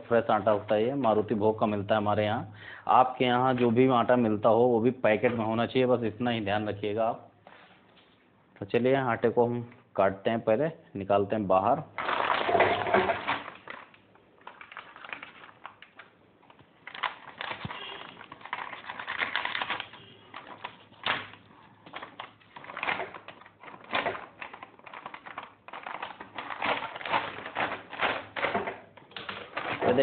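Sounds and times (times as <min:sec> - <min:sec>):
plastic packet crinkling: 0:12.0 - 0:30.0.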